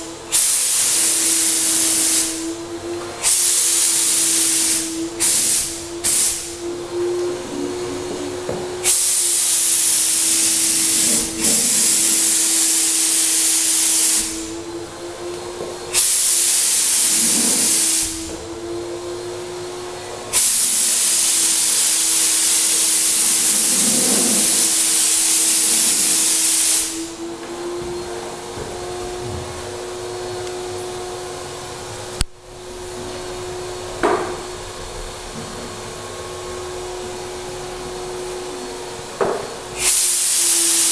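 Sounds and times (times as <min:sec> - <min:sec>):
spray gun hissing: 0:00.0 - 0:02.6, 0:03.2 - 0:14.6, 0:15.9 - 0:18.3, 0:20.3 - 0:27.2, 0:39.7 - 0:40.9
turbine whining: 0:00.0 - 0:40.9.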